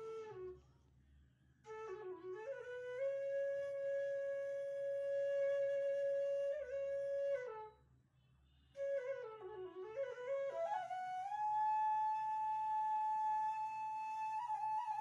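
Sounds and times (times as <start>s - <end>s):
solo flute melody: 0.0s - 0.6s, 1.7s - 7.8s, 8.7s - 15.0s.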